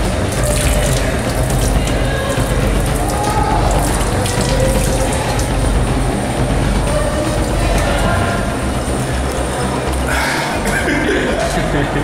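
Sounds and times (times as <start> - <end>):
faucet running into sink: 0.0 - 5.8.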